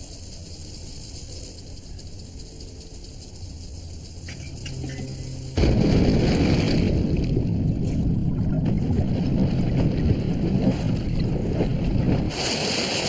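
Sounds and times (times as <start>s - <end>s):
water splashing: 4.3s - 13.0s
underwater rush and bubbling: 4.7s - 13.0s.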